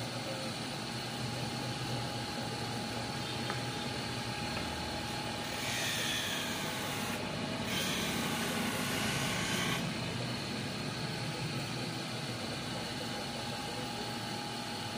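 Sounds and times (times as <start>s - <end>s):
lens grinding machine whine: 3.2s - 10.3s.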